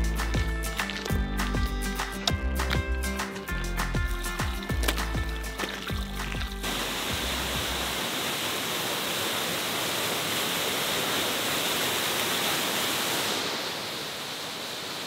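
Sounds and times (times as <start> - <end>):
waterfall rushing: 4.4 - 15.0.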